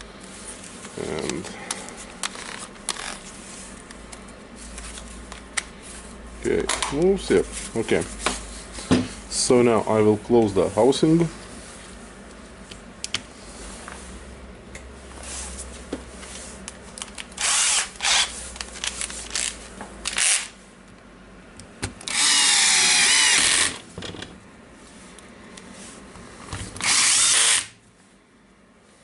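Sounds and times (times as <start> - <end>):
cordless drill driving screws: 17.4 - 18.3, 22.1 - 23.8, 26.8 - 27.7.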